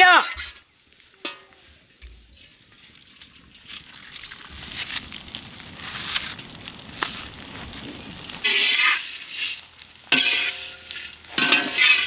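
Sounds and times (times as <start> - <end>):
dry noodles snapping and crushing: 0.9 - 8.5.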